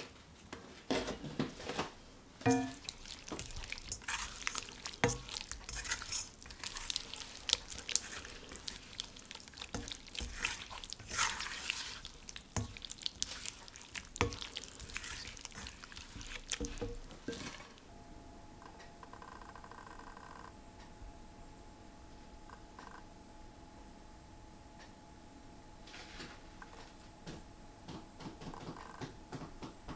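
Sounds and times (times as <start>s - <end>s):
spatula scraping a wok: 2.5s - 17.8s
wet squelching sauce: 2.5s - 17.8s.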